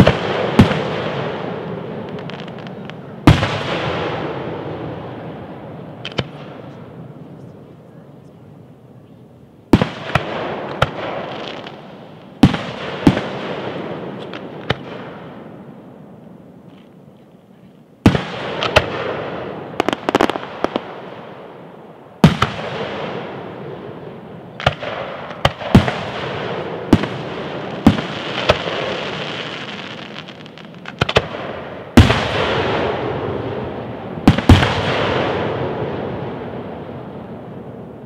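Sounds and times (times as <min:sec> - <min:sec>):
fireworks bangs with rolling echo: 0:00.0 - 0:07.7, 0:09.7 - 0:16.8, 0:18.0 - 0:38.0.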